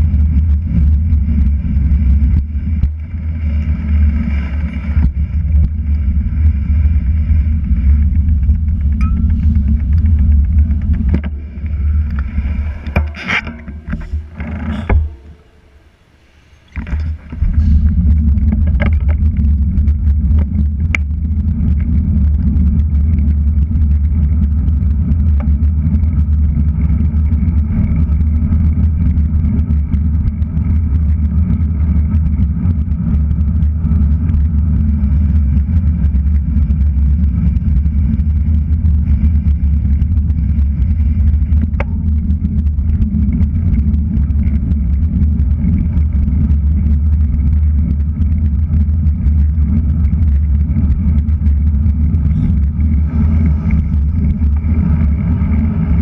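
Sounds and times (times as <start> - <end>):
wind and road noise rumble: 0.0 - 56.0.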